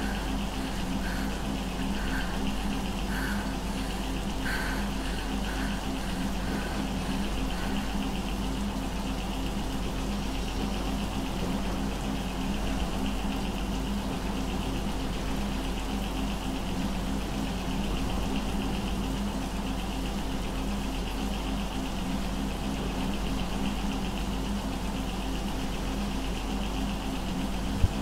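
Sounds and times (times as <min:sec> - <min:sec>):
thin high whine: 0:00.0 - 0:08.7
droning hum with flutter: 0:00.0 - 0:28.0.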